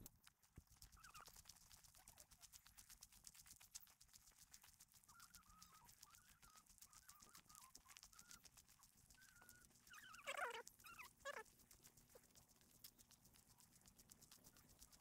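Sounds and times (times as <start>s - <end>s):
wavering animal calls: 5.0s - 8.5s, 9.1s - 11.5s.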